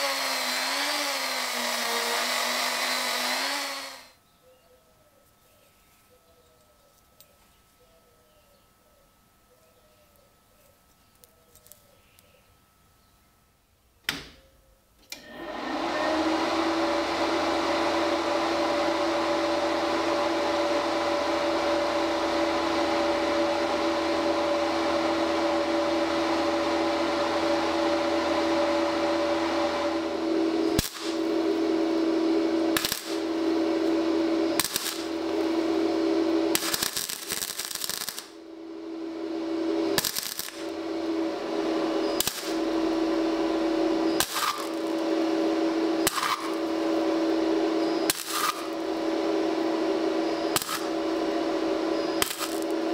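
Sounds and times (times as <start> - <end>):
welding machine cooling fan humming: 0.0 - 4.2, 15.0 - 52.9.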